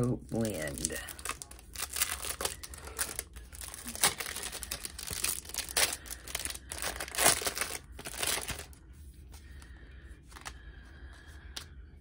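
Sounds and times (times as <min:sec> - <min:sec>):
packaging crinkling and tearing: 0:00.0 - 0:08.8.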